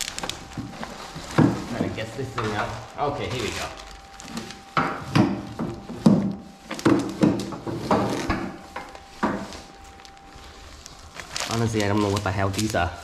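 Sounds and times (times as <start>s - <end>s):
plastic bag rustling: 0.0s - 13.0s.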